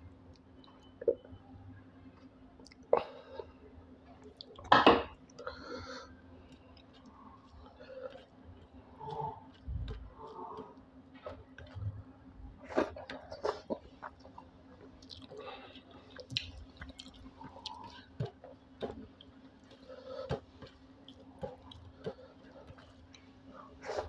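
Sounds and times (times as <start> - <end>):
chewing: 4.0 - 24.0.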